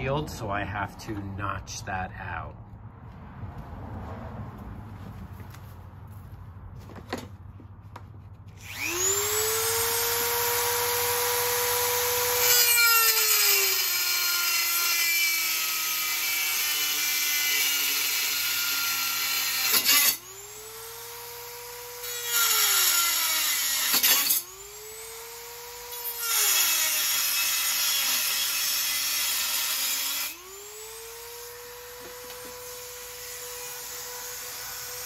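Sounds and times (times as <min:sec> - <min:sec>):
rotary tool grinding metal: 0:08.6 - 0:35.0.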